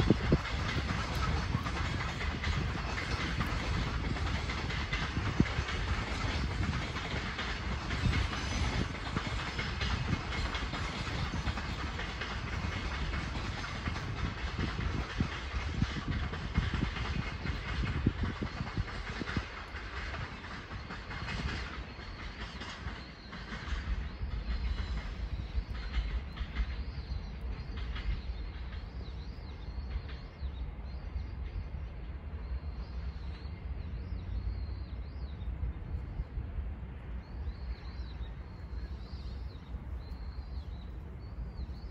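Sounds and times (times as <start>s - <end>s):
steady low rumble: 0.0s - 21.6s
train wheels clicking over rail joints: 0.0s - 31.6s, 37.4s - 41.9s.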